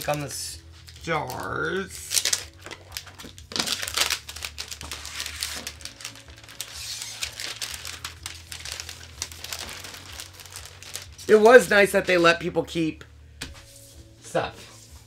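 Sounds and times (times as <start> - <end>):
plastic sheet crinkling: 1.3 - 12.3.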